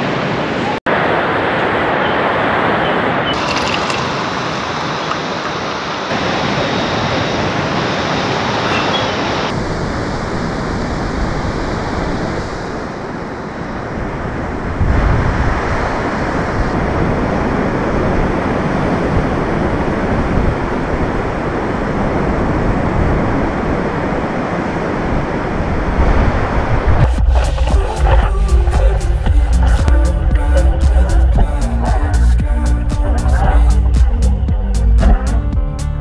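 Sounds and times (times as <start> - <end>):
ocean surf breaking: 0.0 - 34.6
wind rumble on microphone: 9.4 - 35.4.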